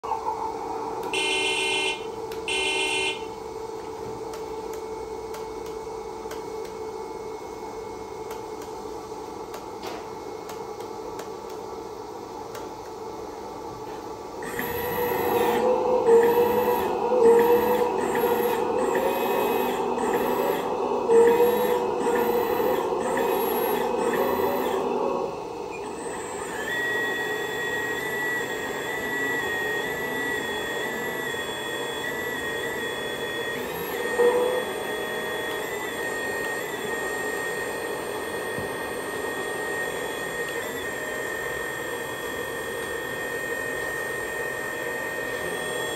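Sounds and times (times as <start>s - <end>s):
hydraulic pump whirring: 0.0s - 11.3s, 13.7s - 45.9s
toy horn toot: 1.2s - 3.2s.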